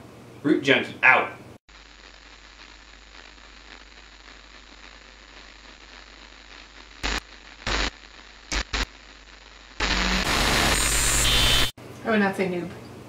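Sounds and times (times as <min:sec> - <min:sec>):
static hiss: 0:01.6 - 0:11.8
static crackle bursts: 0:01.7 - 0:11.8.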